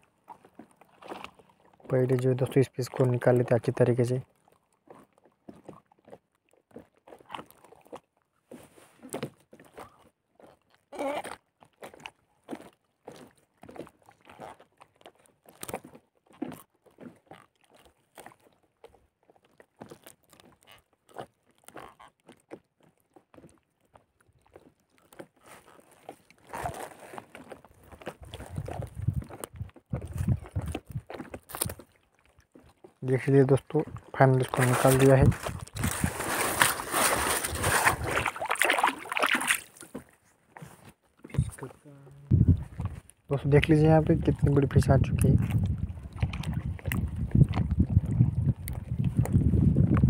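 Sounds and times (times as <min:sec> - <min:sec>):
nylon net crackling and rustling: 0:34.3 - 0:40.0.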